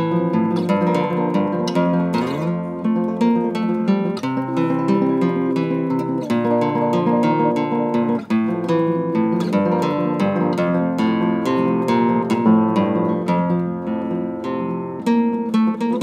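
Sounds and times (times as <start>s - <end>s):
classical guitar playing: 0.0s - 16.0s.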